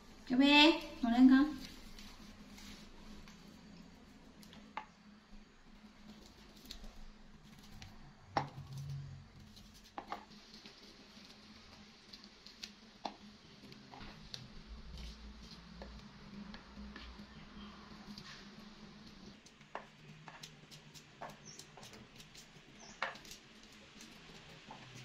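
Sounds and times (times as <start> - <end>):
utensils clicking and tapping: 18.0 - 25.0.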